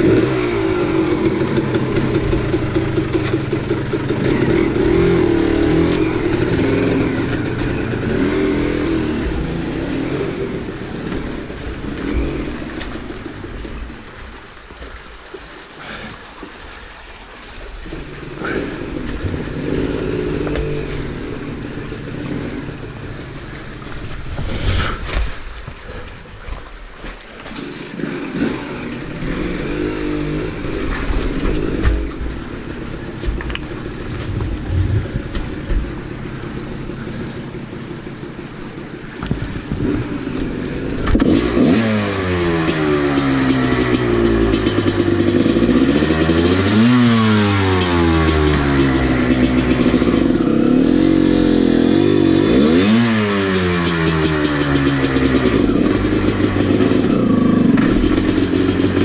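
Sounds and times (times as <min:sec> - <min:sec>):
dirt bike engine running: 0:00.0 - 0:14.1, 0:18.0 - 0:26.0, 0:27.5 - 0:59.0.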